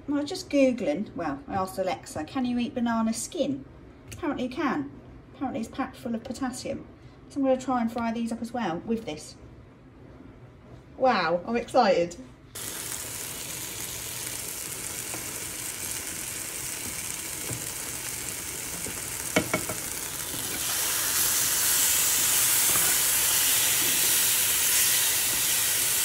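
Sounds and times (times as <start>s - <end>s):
banana frying in a pan: 12.6s - 26.0s
spoon knocking on a pan: 18.8s - 19.9s.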